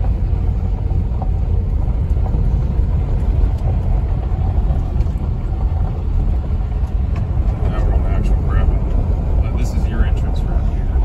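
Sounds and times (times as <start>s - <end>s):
car tyres rumbling on gravel: 0.0s - 11.0s.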